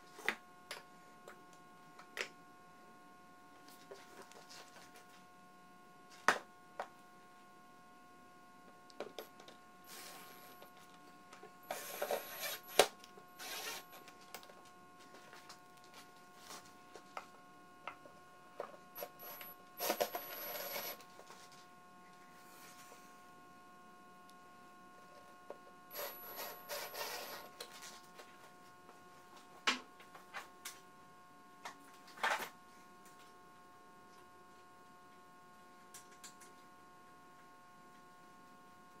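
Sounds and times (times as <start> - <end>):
cordless drill driving screws: 11.7 - 14.0.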